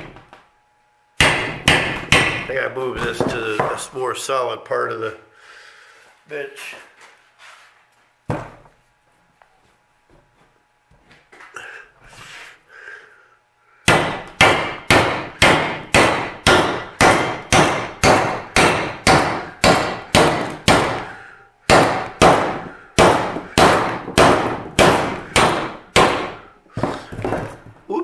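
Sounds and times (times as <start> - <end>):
hammer striking steel: 1.2 - 2.6, 13.9 - 26.4.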